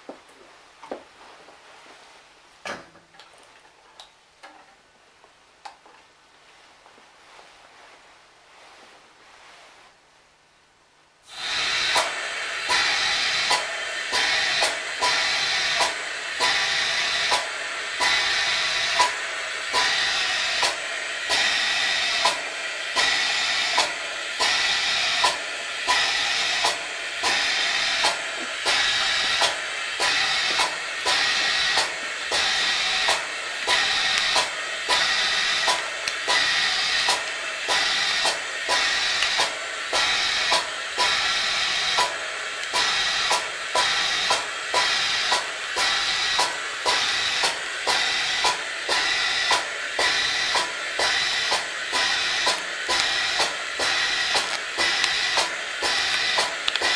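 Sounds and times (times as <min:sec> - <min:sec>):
ventilator gas hiss: 0:11.2 - 0:56.9
ventilator clicking: 0:11.4 - 0:56.9.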